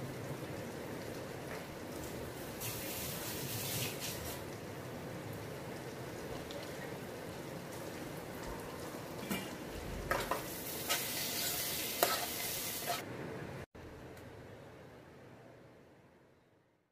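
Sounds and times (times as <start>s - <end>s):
food sizzling in hot fat: 0.0s - 13.1s.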